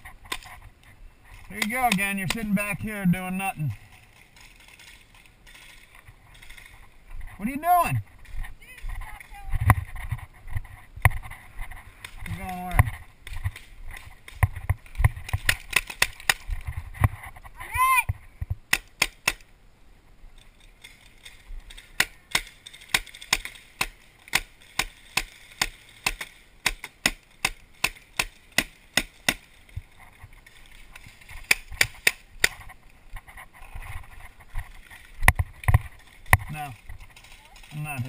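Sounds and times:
paintball markers firing: 0:12.0 - 0:16.5, 0:18.7 - 0:19.5, 0:21.7 - 0:29.6, 0:31.4 - 0:32.6.

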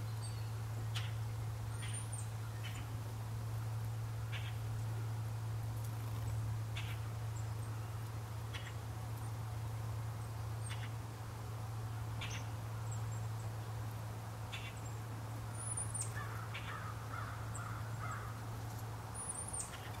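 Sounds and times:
birds twittering: 0:00.0 - 0:03.0, 0:04.2 - 0:05.2, 0:05.8 - 0:20.0
steady low hum: 0:00.0 - 0:20.0
birds harsh calls: 0:04.2 - 0:04.8, 0:06.0 - 0:08.9, 0:10.6 - 0:11.0, 0:12.1 - 0:13.4, 0:14.5 - 0:20.0.

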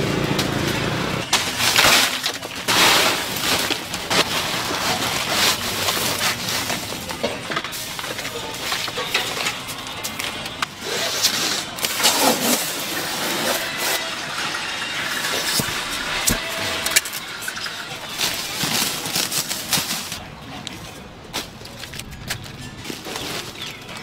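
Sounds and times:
foam cooler being opened: 0:01.2 - 0:17.2, 0:18.0 - 0:20.2
plastic bag crinkling: 0:01.3 - 0:09.0, 0:15.3 - 0:20.3.

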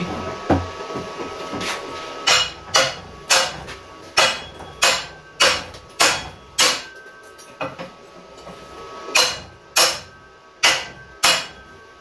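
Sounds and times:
hammer striking metal: 0:02.2 - 0:07.9, 0:09.1 - 0:11.8.

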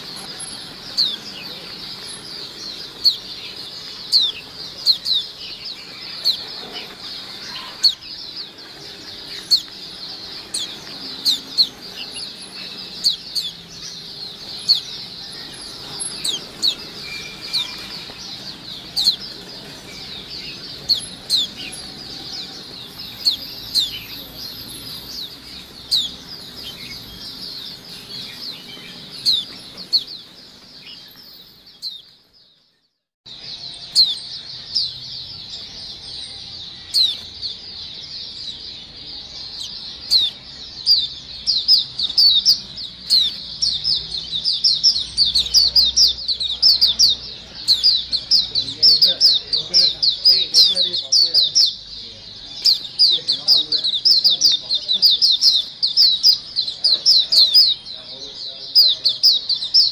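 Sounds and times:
loud single bird chirps: 0:00.0 - 0:32.2
flock of birds chirping: 0:00.0 - 0:59.9.

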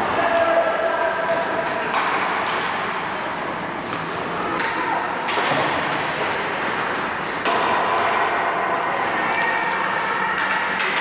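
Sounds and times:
skate and arena noise: 0:00.0 - 0:11.0.

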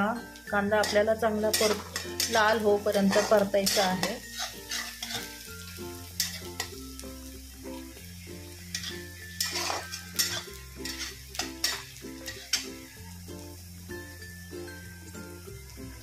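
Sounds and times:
onion sizzling in a pan: 0:00.0 - 0:16.0
spatula scraping a pan: 0:00.8 - 0:06.8, 0:08.5 - 0:12.8.

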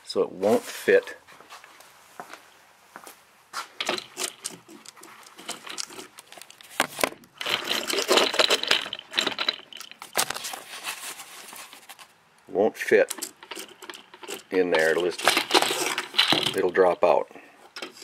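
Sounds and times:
scraping and rubbing: 0:03.6 - 0:12.2, 0:12.8 - 0:18.0.

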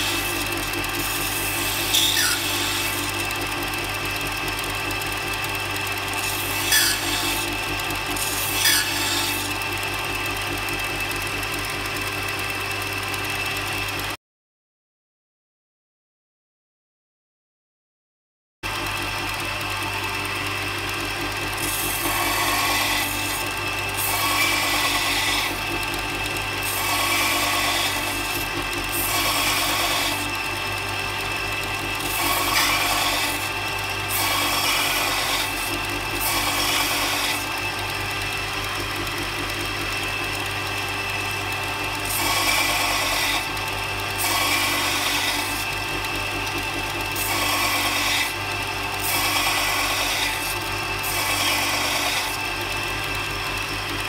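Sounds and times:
drill bit grinding on wheel: 0:00.0 - 0:14.1, 0:18.7 - 0:54.0
bench grinder motor humming: 0:00.0 - 0:14.2, 0:18.7 - 0:54.0.

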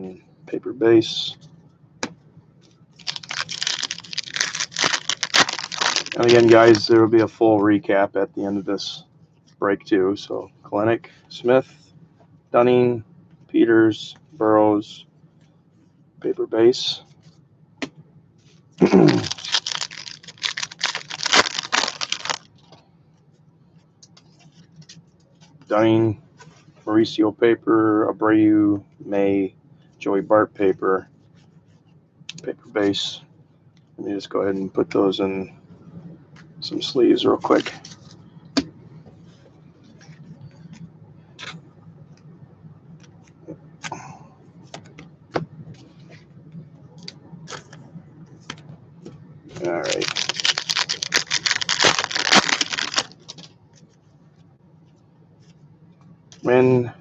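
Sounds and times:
low steady hum: 0:00.0 - 0:57.0
card pack wrapper tearing: 0:03.0 - 0:06.9, 0:18.8 - 0:22.4, 0:49.6 - 0:53.5
wrapper crackly rustling: 0:03.0 - 0:07.0, 0:18.8 - 0:22.6, 0:49.6 - 0:53.5.

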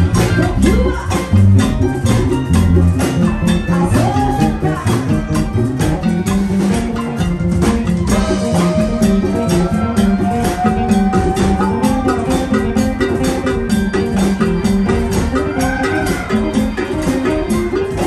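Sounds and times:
electric bass: 0:00.0 - 0:18.0
latin band dance music: 0:00.0 - 0:18.0.

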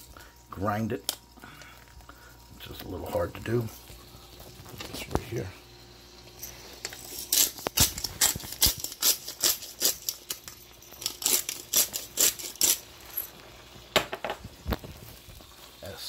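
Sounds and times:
pepper mill grinding: 0:06.4 - 0:13.4.

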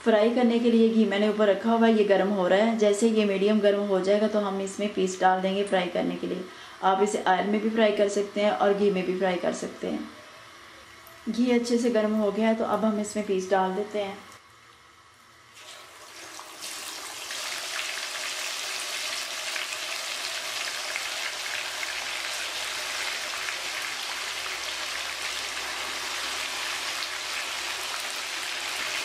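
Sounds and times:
chicken deep-frying in hot fat: 0:15.5 - 0:29.0.

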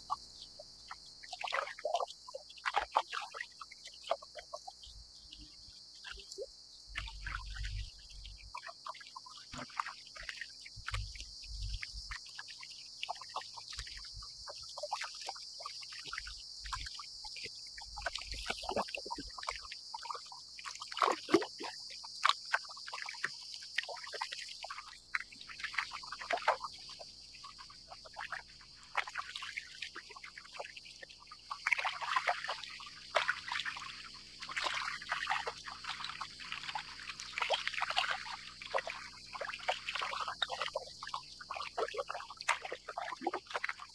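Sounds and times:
cicadas chorus: 0:00.0 - 0:43.9
water splashing against kayak hull: 0:16.7 - 0:43.9.

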